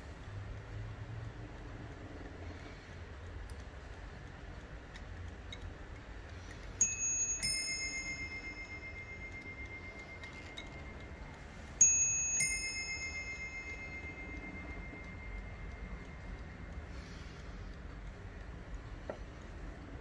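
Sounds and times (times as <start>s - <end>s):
faint clock ticking: 0.0s - 20.0s
clock chiming two bells: 6.8s - 17.4s.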